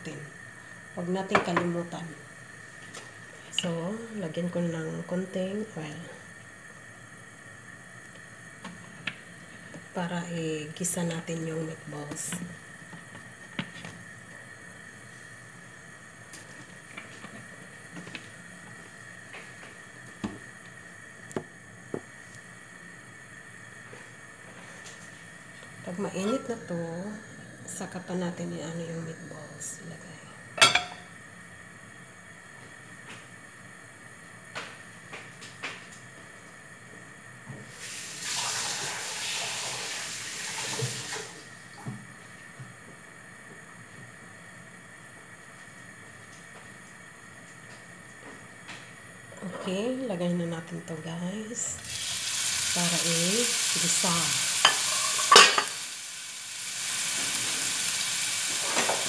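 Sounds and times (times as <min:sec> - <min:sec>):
gas burner hiss and hum: 0:00.0 - 0:59.0
kitchen tap running: 0:37.7 - 0:41.5, 0:51.7 - 0:59.0.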